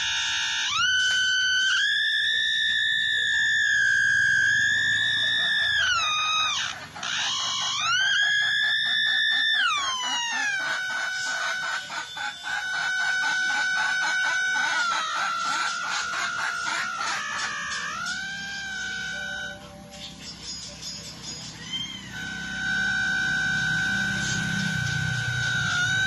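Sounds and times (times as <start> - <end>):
electronic tone changing pitch: 9.1 - 26.0.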